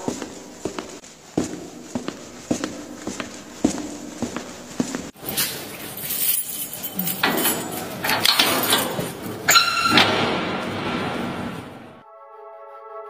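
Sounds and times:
keys jangling: 0:05.2 - 0:09.9.

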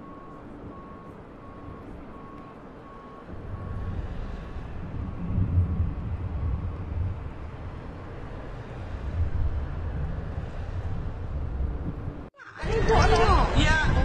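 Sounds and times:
faint evenly spaced beeps: 0:00.0 - 0:05.6
deep outdoor rumble: 0:00.0 - 0:14.0.

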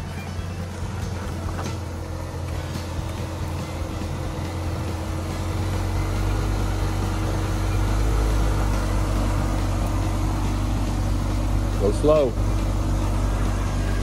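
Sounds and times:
car engine at low revs: 0:00.0 - 0:14.0.

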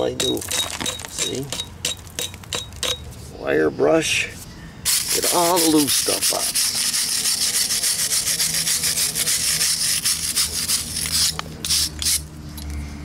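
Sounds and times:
wire brush scrubbing concrete: 0:04.9 - 0:12.3.

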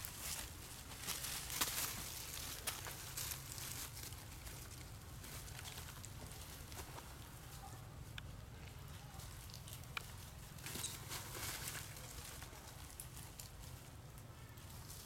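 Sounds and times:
rustling of dry leaf litter: 0:00.0 - 0:15.0.

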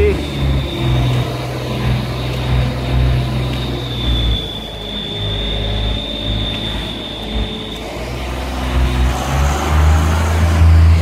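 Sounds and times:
high-pitched whine: 0:00.0 - 0:11.0
low engine hum: 0:00.0 - 0:11.0.

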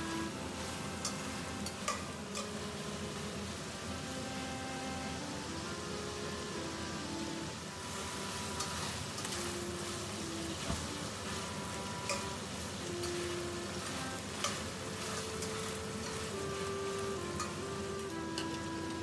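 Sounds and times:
chicken sizzling in pan: 0:00.0 - 0:19.0.

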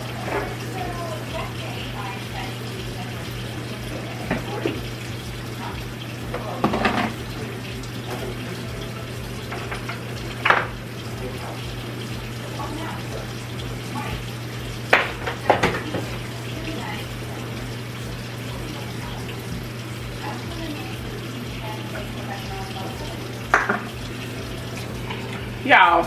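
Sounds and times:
kitchen items knocking on counter: 0:06.3 - 0:07.2, 0:09.5 - 0:10.8, 0:14.9 - 0:16.2, 0:23.5 - 0:24.0.

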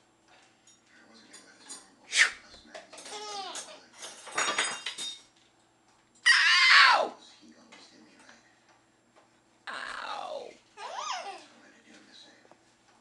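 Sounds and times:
pots and dishes clattering: 0:02.7 - 0:05.4
baby laughing and squealing: 0:10.8 - 0:11.5.

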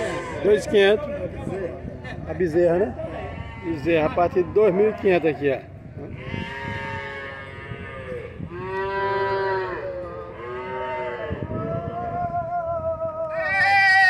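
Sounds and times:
cattle mooing: 0:03.2 - 0:05.3, 0:06.0 - 0:11.6.

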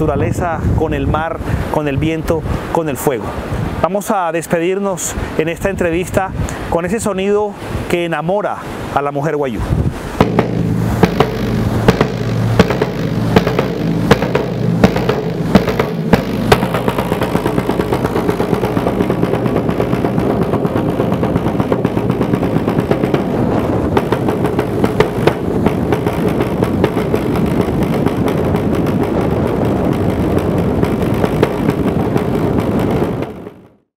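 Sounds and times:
wooden drum beaten with sticks: 0:10.2 - 0:33.6.

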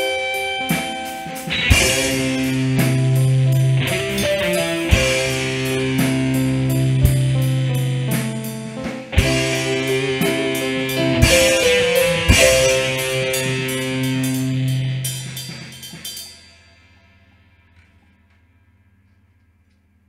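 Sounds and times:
ticking beat: 0:00.0 - 0:16.5
instrumental music with held notes: 0:00.0 - 0:18.3
heavy drum hits: 0:00.8 - 0:16.3.

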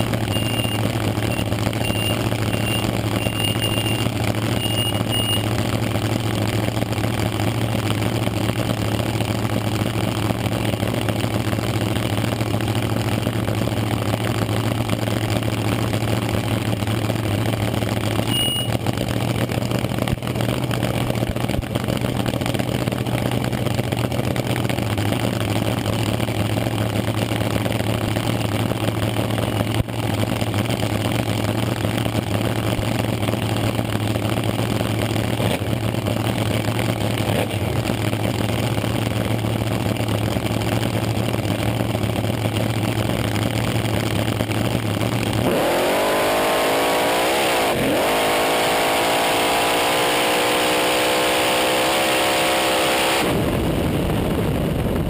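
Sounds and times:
dragster engine revving: 0:32.5 - 0:55.0.

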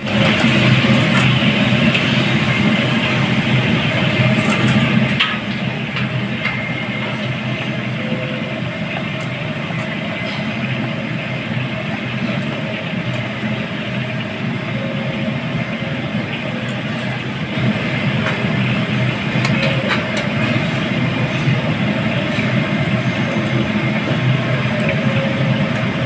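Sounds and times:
machine hum with hiss: 0:00.0 - 0:26.0.

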